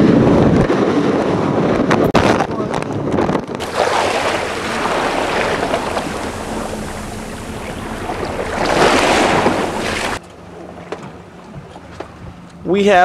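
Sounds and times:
wind buffeting microphone: 0:03.6 - 0:10.2
low engine hum: 0:03.6 - 0:10.4
water rushing along boat hull: 0:03.6 - 0:12.3.

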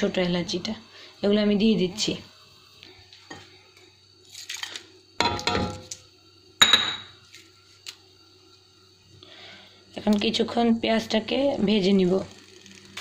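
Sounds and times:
onions frying: 0:00.0 - 0:13.0.

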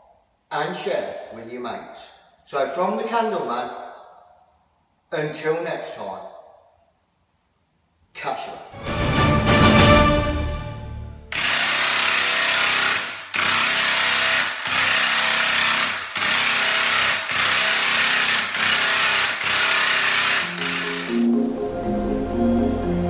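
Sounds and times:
paint sprayer hissing: 0:11.3 - 0:21.3.

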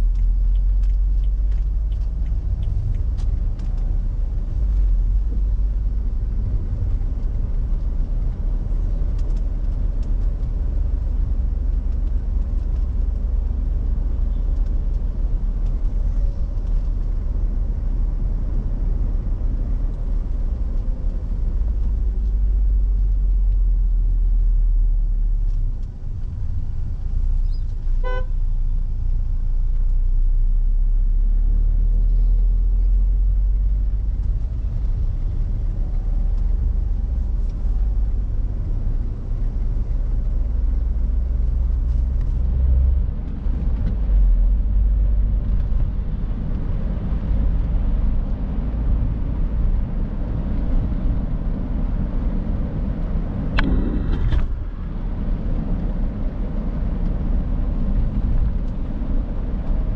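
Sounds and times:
road and engine rumble: 0:00.0 - 0:59.9
vehicle horn toot: 0:28.0 - 0:28.4.

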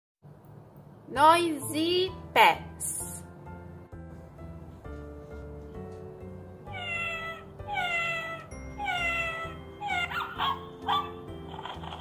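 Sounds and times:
looping backing music: 0:01.2 - 0:12.0
recorded cat meowing: 0:06.7 - 0:10.1.

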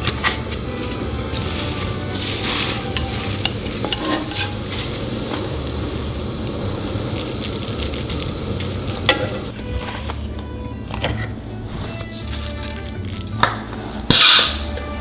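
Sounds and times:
soft sizzle in pan: 0:00.8 - 0:09.6
chopsticks scraping and clicking: 0:02.2 - 0:04.9.

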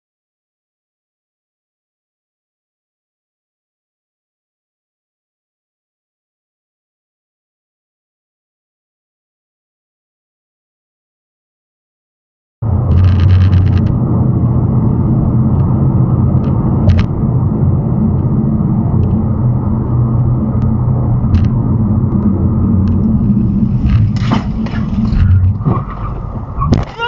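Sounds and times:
road and engine rumble in car: 0:12.6 - 0:27.0
sharp noises of hard braking: 0:12.6 - 0:27.0.

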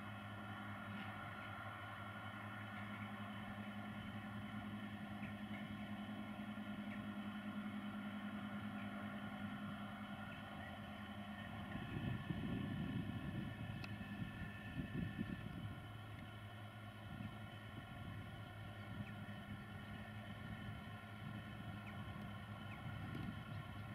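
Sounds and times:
distant tractor engines droning: 0:00.0 - 0:23.9
rough low rumble: 0:17.0 - 0:23.9.

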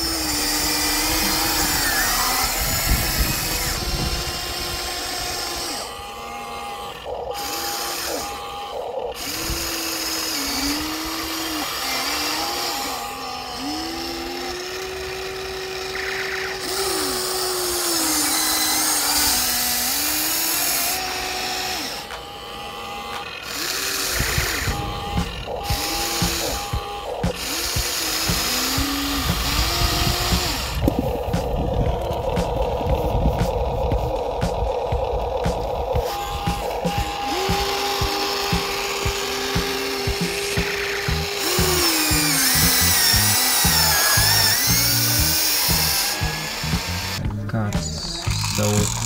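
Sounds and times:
toy excavator motors whining: 0:00.0 - 0:49.0.

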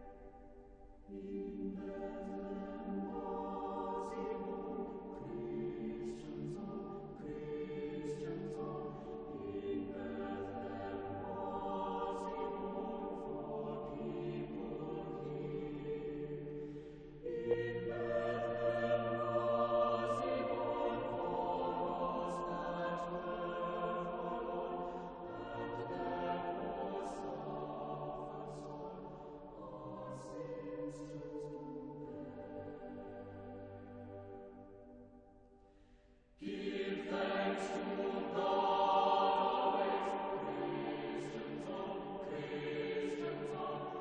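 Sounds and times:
choir singing chant-like phrases: 0:00.0 - 0:35.0, 0:35.6 - 0:44.0.

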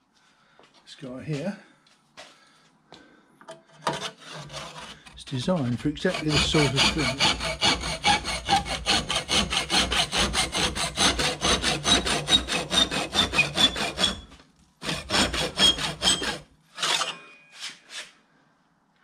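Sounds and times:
hand saw cutting metal: 0:03.8 - 0:18.2.

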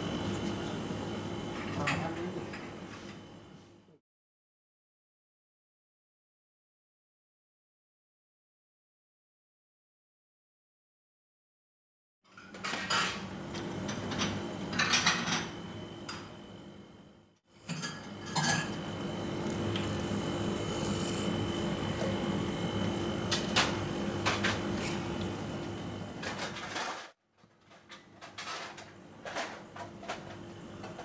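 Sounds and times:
kitchen equipment hum: 0:00.0 - 0:04.0, 0:12.3 - 0:31.0.

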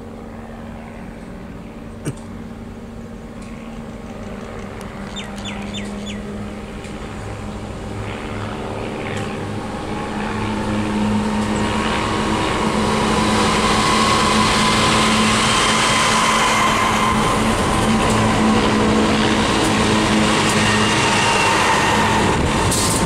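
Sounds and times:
locomotive engines droning: 0:00.0 - 0:23.0
locomotive whine: 0:00.0 - 0:23.0
bird whistling: 0:05.1 - 0:06.2.

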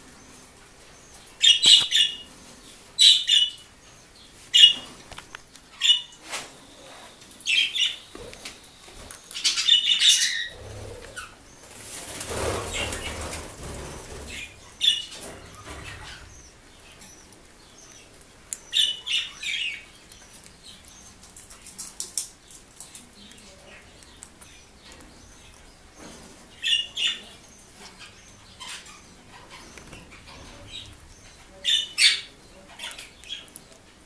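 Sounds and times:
beaks clicking and pecking: 0:01.1 - 0:02.4, 0:07.4 - 0:34.0
parrots chirping: 0:01.1 - 0:02.4, 0:03.0 - 0:03.7, 0:04.5 - 0:04.9, 0:05.7 - 0:06.2, 0:06.8 - 0:21.5, 0:26.6 - 0:33.6.

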